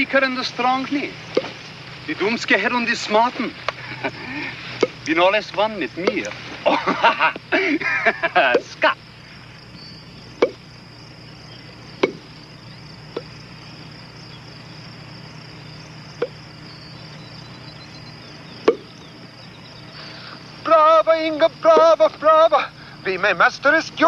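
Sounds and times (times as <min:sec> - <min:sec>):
background hiss: 0:00.0 - 0:24.0
racket striking shuttlecock: 0:01.4 - 0:01.6, 0:10.4 - 0:10.6, 0:12.0 - 0:12.2, 0:18.6 - 0:18.9.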